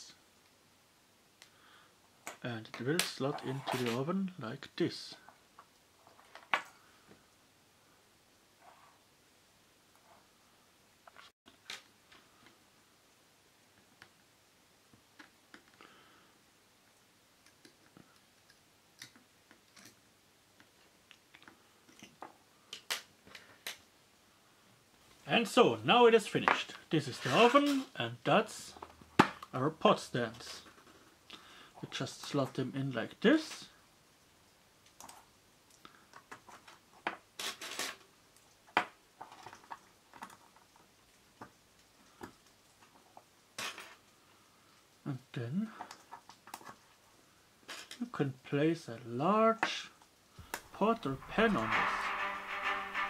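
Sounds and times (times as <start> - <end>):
metal scraping: 50.7 - 53.0.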